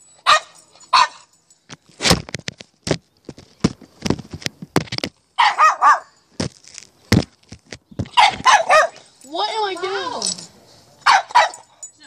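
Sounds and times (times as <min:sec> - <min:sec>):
puppy barking in high yips: 0:00.2 - 0:01.3, 0:05.4 - 0:06.1, 0:08.1 - 0:09.0, 0:11.0 - 0:11.7.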